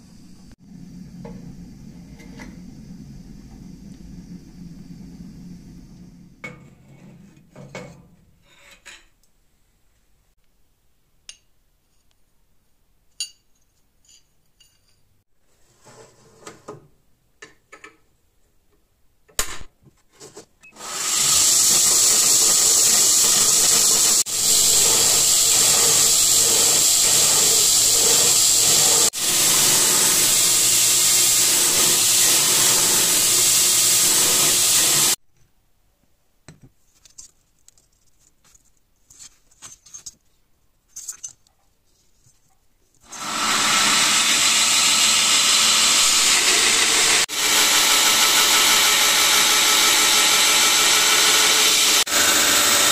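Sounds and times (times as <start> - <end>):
belt grinder hissing on steel: 20.8 - 35.2, 43.0 - 52.9
metal clinks and knocks: 40.9 - 41.7.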